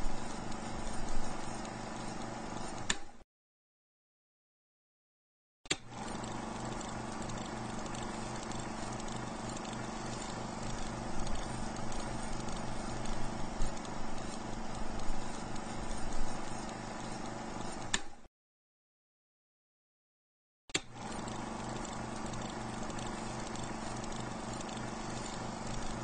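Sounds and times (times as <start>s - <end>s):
mechanical click: 2.8s - 3.1s, 17.8s - 18.2s
rhythmic mechanical clatter: 5.9s - 17.8s, 20.9s - 26.0s.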